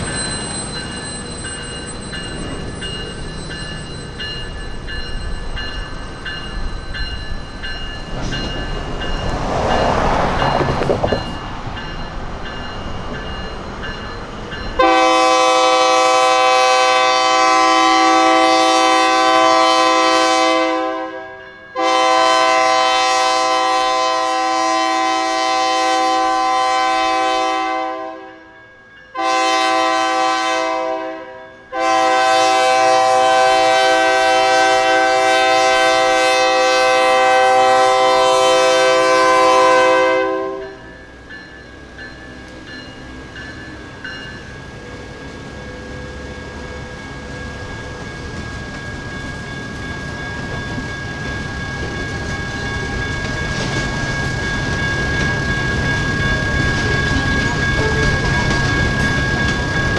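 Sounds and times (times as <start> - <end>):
electronic crossing bells ringing: 0.0 - 15.3, 40.6 - 59.9
locomotive horn blasts: 14.8 - 28.4, 29.2 - 40.8.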